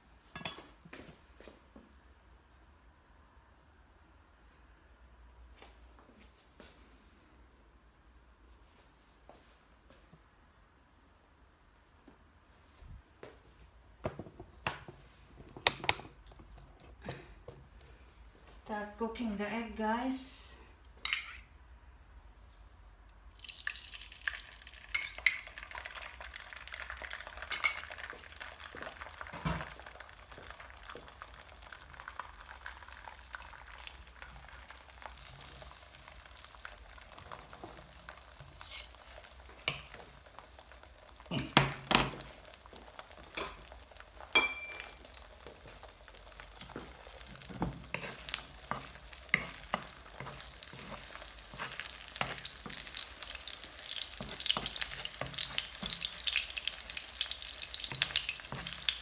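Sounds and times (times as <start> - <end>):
eggs sizzling in oil: 23.1 - 59.0.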